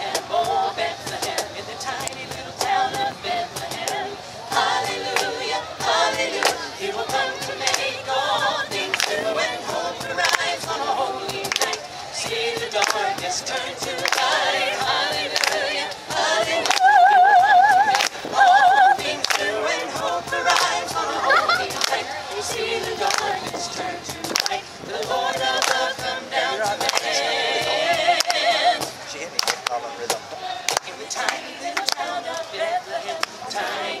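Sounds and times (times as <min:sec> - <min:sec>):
carolers singing together: 0:00.0 - 0:34.0
woman singing wavering note: 0:16.8 - 0:19.0.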